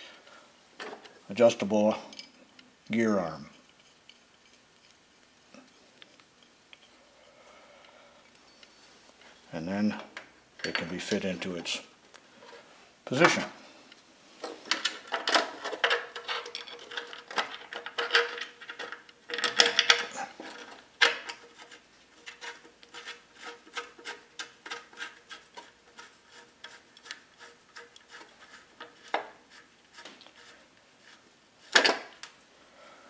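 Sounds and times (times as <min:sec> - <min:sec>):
metal clicks and scraping: 0:02.0 - 0:07.0, 0:10.0 - 0:11.8, 0:14.4 - 0:32.4.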